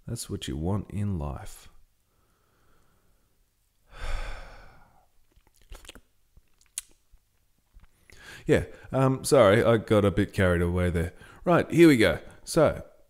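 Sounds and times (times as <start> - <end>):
man sighing: 3.9 - 5.0.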